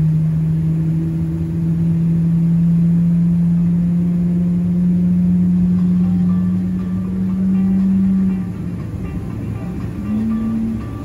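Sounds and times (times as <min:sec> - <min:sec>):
jet engines humming in cabin: 0:00.0 - 0:11.0.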